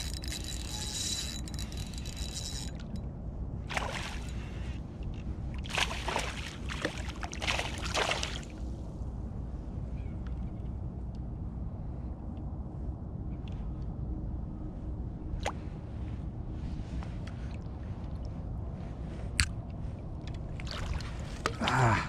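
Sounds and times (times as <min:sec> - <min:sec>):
fishing reel cranking: 0:00.0 - 0:03.0
low steady rumble: 0:00.0 - 0:22.0.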